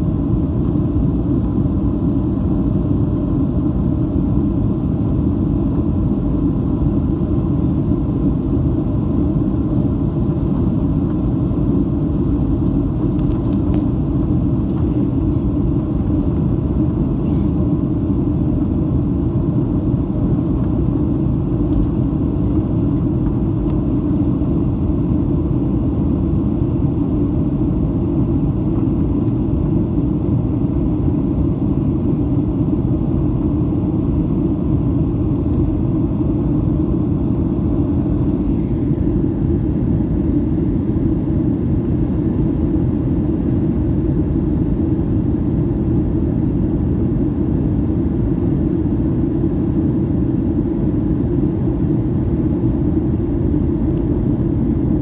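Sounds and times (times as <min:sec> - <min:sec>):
jet engines rumbling: 0:00.0 - 0:55.0
rushing airflow: 0:08.1 - 0:45.8.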